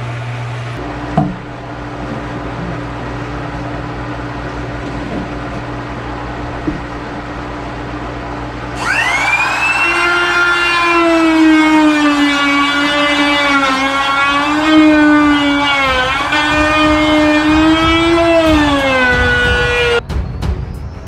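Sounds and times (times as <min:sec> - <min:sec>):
pool pump humming: 0:00.0 - 0:20.0
electric router whining: 0:08.7 - 0:20.0.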